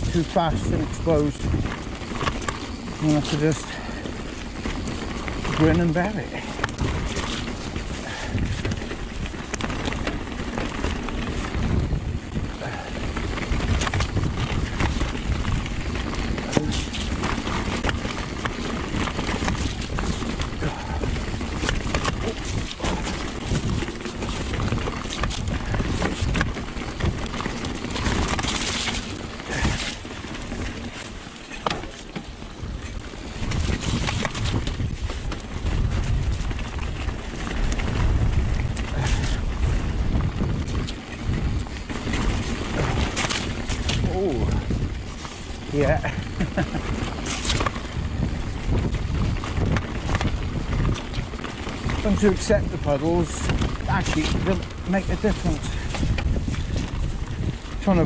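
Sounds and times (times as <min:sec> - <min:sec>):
bike clattering over rocks: 0:00.0 - 0:58.0
wind rumbling on microphone: 0:00.0 - 0:58.0.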